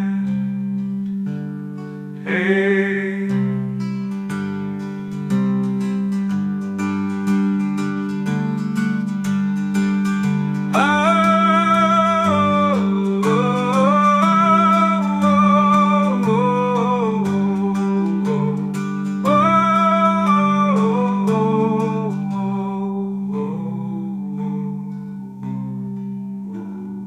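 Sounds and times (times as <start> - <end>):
wordless melody line: 0.0 - 27.0
instrumental music with steady beat: 3.4 - 27.0.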